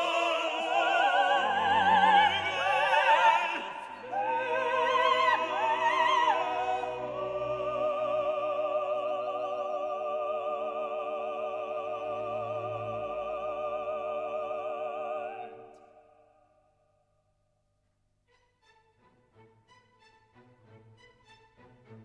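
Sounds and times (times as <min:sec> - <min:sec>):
operatic singing with vibrato: 0:00.0 - 0:16.4.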